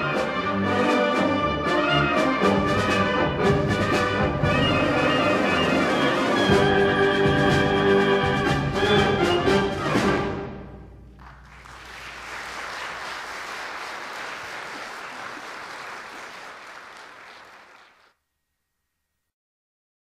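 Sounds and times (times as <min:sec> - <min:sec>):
audience applauding: 0:11.1 - 0:18.2.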